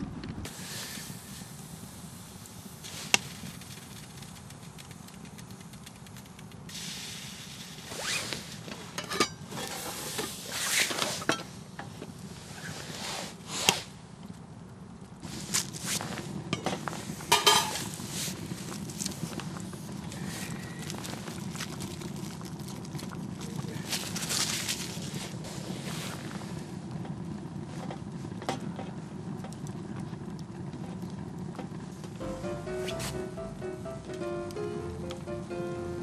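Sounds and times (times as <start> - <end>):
pots scraping on stove: 7.9 - 11.6, 15.3 - 21.5
metal pots clinking: 8.9 - 9.9, 16.6 - 18.0.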